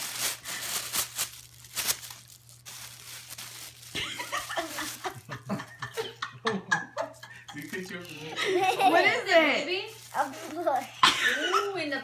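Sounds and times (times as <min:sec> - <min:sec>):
wrapping paper tearing: 0:00.0 - 0:05.4, 0:07.6 - 0:12.0
person speaking: 0:07.4 - 0:12.0.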